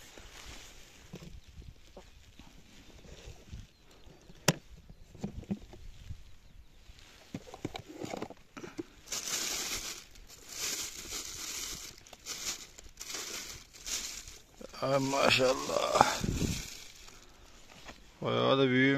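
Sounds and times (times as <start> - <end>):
plastic bags rustling: 7.2 - 18.0.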